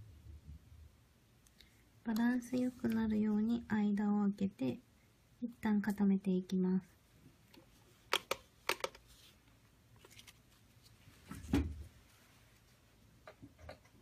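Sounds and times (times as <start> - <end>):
nail tools clicking and tapping: 8.1 - 9.0.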